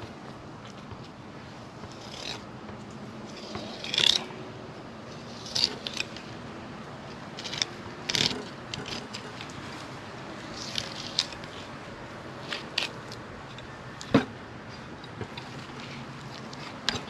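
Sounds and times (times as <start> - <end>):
knife scraping fish bones: 1.9 - 2.4, 3.3 - 4.3, 5.2 - 6.3, 7.4 - 9.5, 10.5 - 11.7, 12.4 - 13.2.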